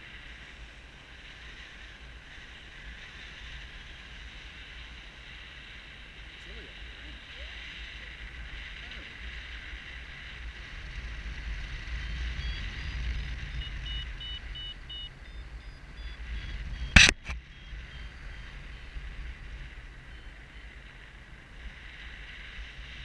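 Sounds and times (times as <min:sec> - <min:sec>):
wind rushing over microphone: 0:00.0 - 0:23.0
short high beeps: 0:13.6 - 0:15.4
sharp knock: 0:17.0 - 0:17.4.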